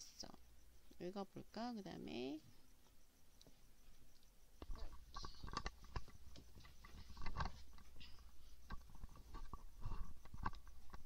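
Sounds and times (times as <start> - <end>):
faint soft noises: 0.0 - 11.0
small irregular clicks: 2.8 - 11.0.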